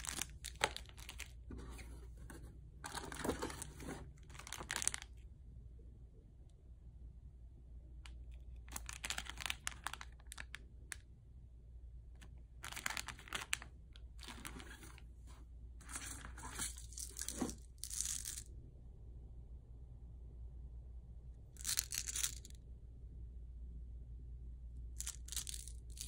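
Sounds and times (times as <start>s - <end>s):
plastic wrapper crinkling: 0.0s - 1.6s, 2.9s - 5.2s, 8.6s - 10.6s, 12.6s - 15.0s.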